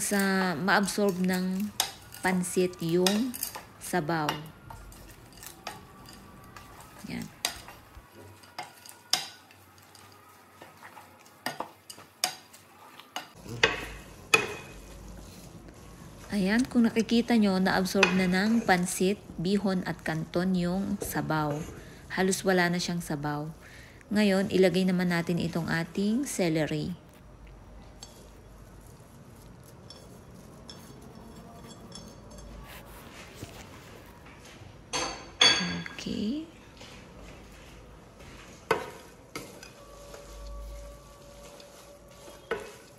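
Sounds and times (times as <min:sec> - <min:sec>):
kitchenware clinking on metal pot: 0:00.0 - 0:12.6, 0:29.6 - 0:32.6, 0:34.9 - 0:36.0, 0:41.4 - 0:42.9
spatula stirring noodles: 0:00.0 - 0:34.1, 0:37.4 - 0:42.9.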